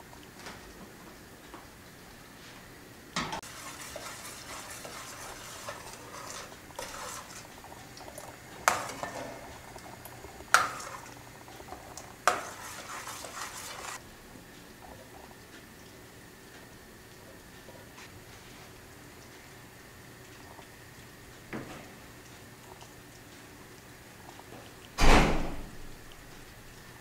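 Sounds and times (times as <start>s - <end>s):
metal spoon scraping saucepan: 3.4s - 7.5s, 8.6s - 9.5s, 10.6s - 11.2s, 12.3s - 14.0s.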